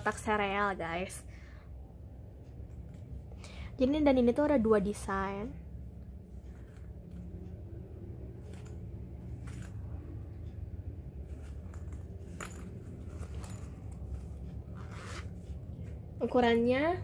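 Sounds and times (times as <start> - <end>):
steady low hum: 0.0 - 17.0
canvas fabric rustling: 11.2 - 16.5
zipper pulled open: 11.4 - 16.0
metallic zipper clicks: 11.6 - 15.4.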